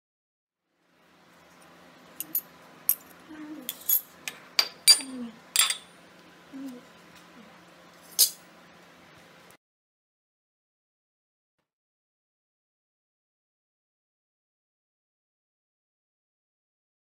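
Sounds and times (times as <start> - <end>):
metal parts clinking on a counter: 2.2 - 3.1, 3.7 - 5.9.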